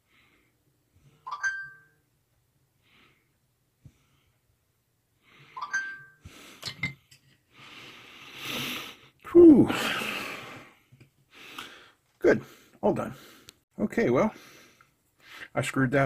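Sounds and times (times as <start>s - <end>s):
breathing through nose: 7.5s - 13.5s.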